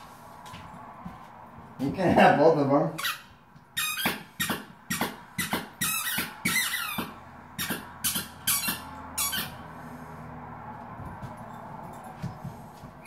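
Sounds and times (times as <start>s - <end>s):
squeaky dog toy squeaking: 2.9s - 9.7s.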